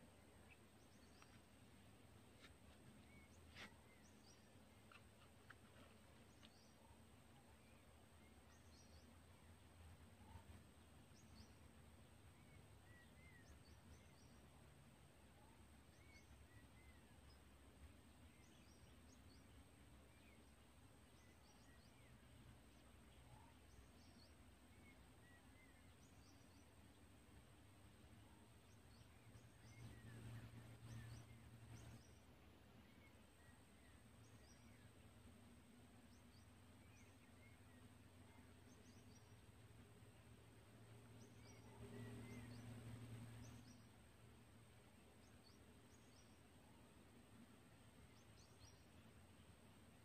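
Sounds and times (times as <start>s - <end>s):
distant bird chirps and whistles: 2.3s - 9.2s, 41.1s - 43.9s.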